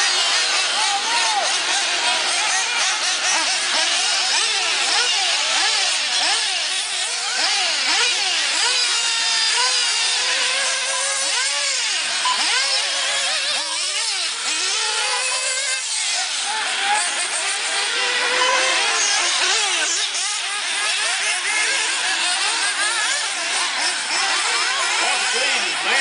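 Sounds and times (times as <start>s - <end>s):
rc car engines whining: 0.0s - 26.0s.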